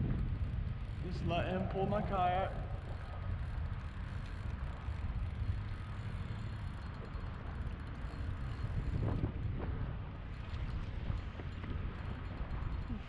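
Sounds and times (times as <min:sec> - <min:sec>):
wind buffeting microphone: 0:00.0 - 0:13.0
wind over choppy water: 0:00.0 - 0:13.0.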